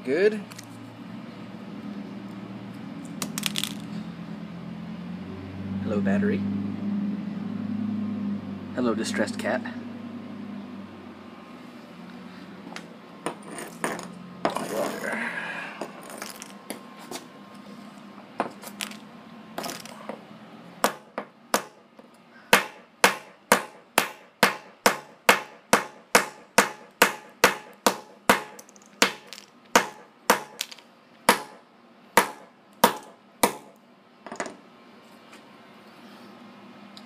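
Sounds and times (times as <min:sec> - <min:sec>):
hammer striking battery on concrete: 0:20.8 - 0:21.8, 0:22.5 - 0:31.6, 0:32.2 - 0:33.8.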